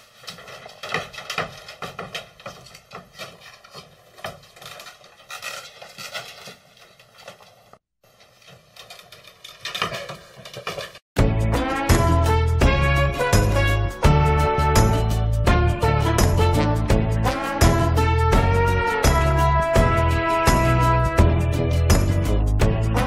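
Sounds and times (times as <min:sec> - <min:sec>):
cat claws scratching mesh: 0:00.1 - 0:11.0.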